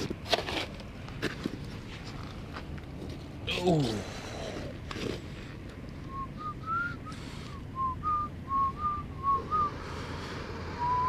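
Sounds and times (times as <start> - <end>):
person whistling a tune: 6.1 - 9.8, 10.8 - 11.0.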